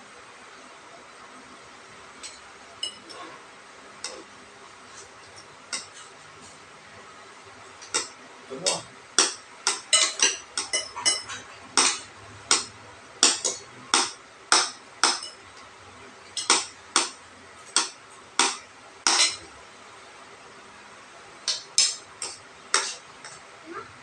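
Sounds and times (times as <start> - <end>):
cutlery clinking against dish: 2.2 - 3.4, 5.4 - 6.0, 7.8 - 15.4, 17.8 - 19.5, 21.5 - 23.4.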